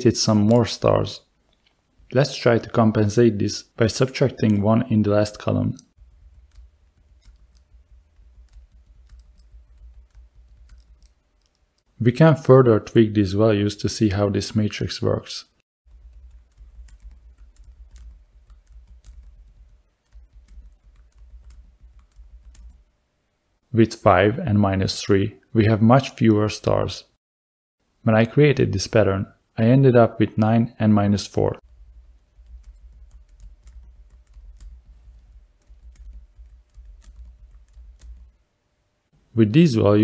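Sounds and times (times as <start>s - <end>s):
computer keyboard typing: 6.0s - 11.8s, 15.9s - 22.8s, 31.6s - 38.4s
computer keyboard key clicks: 6.4s - 7.7s, 8.4s - 11.6s.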